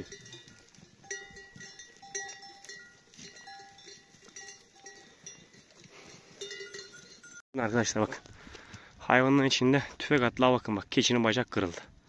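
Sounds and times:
goat bells clanking: 0.0 - 8.0.

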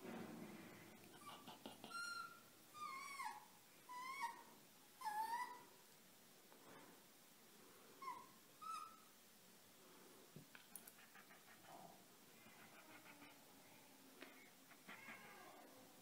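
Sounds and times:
fox kit whimpering: 14.7 - 15.5.

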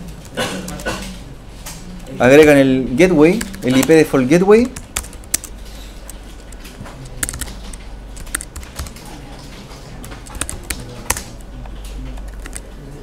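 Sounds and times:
computer keyboard typing: 0.0 - 12.9.

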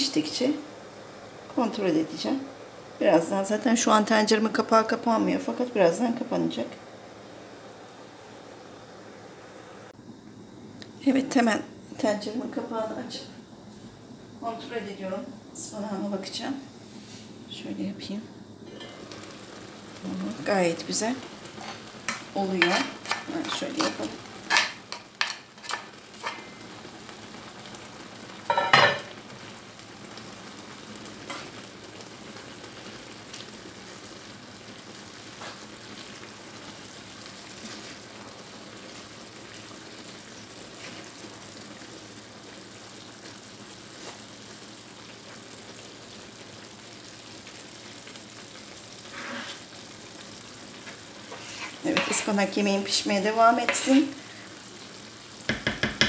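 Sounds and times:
spinach sizzling in a pot: 0.0 - 56.0
spoon knocking against pot: 55.5 - 56.0.

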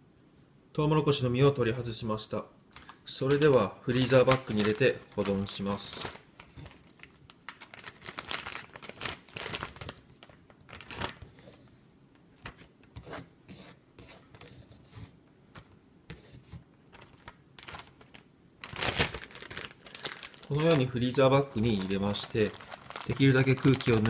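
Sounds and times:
plastic bag crinkling: 2.7 - 11.4, 16.9 - 24.0.

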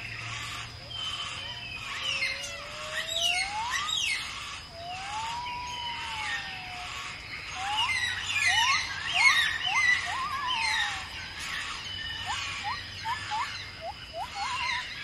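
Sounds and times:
birds chirping: 0.0 - 15.0
bird whistles: 3.0 - 4.2, 7.6 - 11.1, 12.0 - 15.0.

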